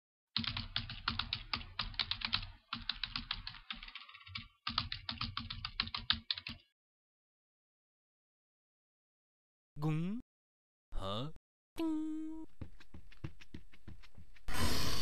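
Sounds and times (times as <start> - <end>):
rapid keyboard typing: 0.4 - 6.7.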